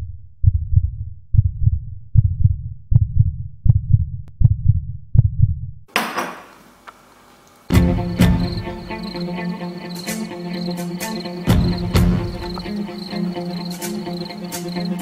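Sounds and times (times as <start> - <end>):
heartbeat thumps: 0.4 - 5.7, 11.5 - 12.8.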